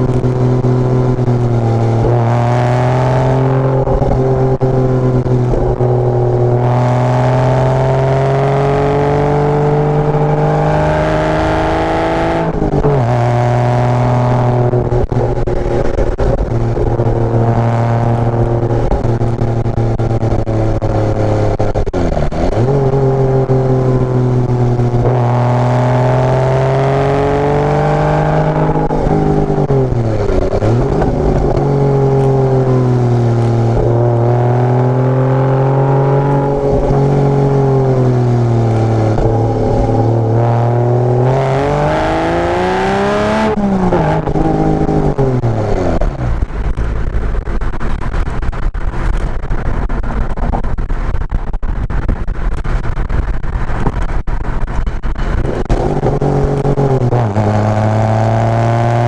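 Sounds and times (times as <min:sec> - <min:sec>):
sports car engine revving: 0:00.0 - 0:51.3, 0:52.4 - 0:59.0
rough rushing noise with crackles: 0:12.3 - 0:41.3, 0:42.0 - 0:59.0.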